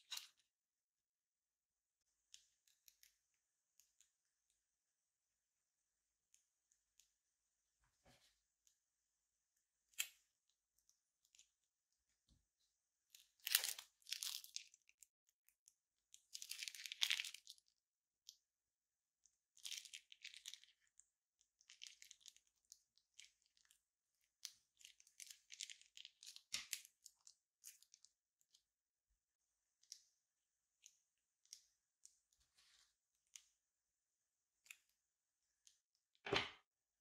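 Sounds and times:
crinkling and sticky crackling: 0.0s - 0.4s, 13.0s - 18.4s, 19.3s - 28.7s.

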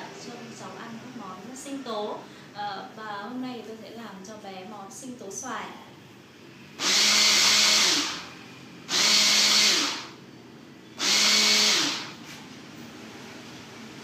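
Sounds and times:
electric hand blender bursts: 6.8s - 8.3s, 8.9s - 10.2s, 11.0s - 12.2s.

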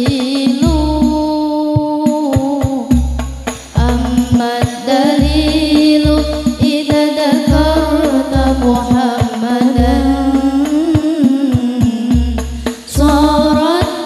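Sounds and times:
girls singing devotional song: 0.0s - 3.1s, 3.7s - 14.0s
drum hits: 1.8s - 14.0s
deep bass notes: 2.9s - 4.4s, 5.2s - 6.7s, 7.5s - 9.0s, 9.8s - 11.2s, 11.9s - 13.8s.

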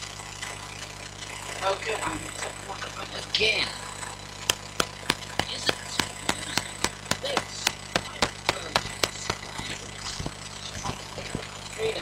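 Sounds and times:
low electrical hum: 0.0s - 12.0s
finger tapping a microphone: 4.5s - 11.0s.

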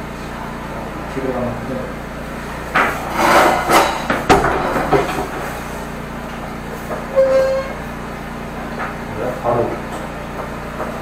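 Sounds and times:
gasoline engine running: 0.0s - 11.0s
sharp knocks and clatters: 2.7s - 5.7s.

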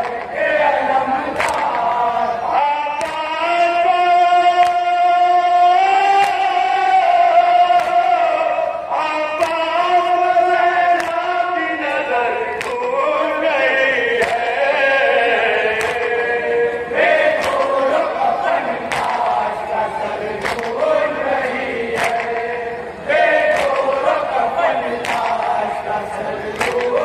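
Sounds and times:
male voices chanting a lament: 0.0s - 27.0s
chest-beating slaps: 1.4s - 1.9s, 15.8s - 16.2s, 17.3s - 17.8s, 18.9s - 19.4s, 20.4s - 20.8s, 21.9s - 22.5s, 23.5s - 24.0s, 25.0s - 25.6s, 26.6s - 27.0s.

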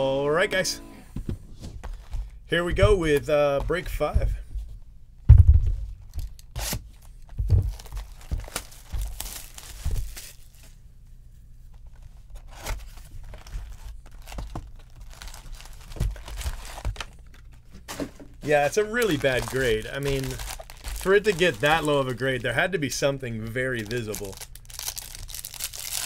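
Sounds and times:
plastic wrapping tearing and crinkling: 6.1s - 10.8s, 11.9s - 17.6s, 18.4s - 22.5s, 23.7s - 26.0s
box knocks and rustles: 7.3s - 9.2s.

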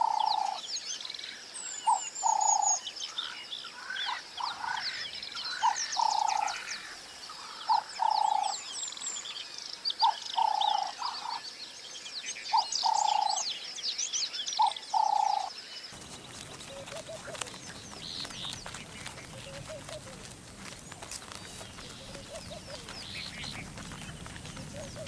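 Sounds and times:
high bird chirps: 14.6s - 25.0s
wild animal calls: 15.0s - 25.0s
scattered ticks: 16.0s - 25.0s.

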